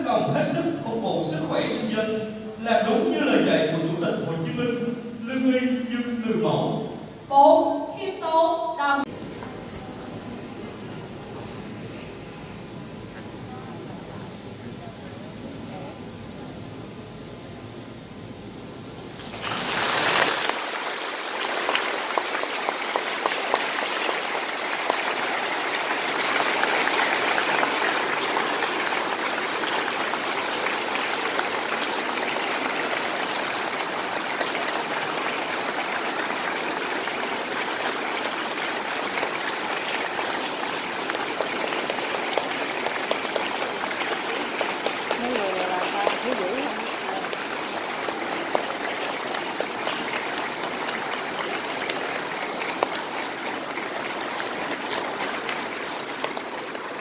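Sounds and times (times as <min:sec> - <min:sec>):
audience applauding: 0:19.1 - 0:57.0.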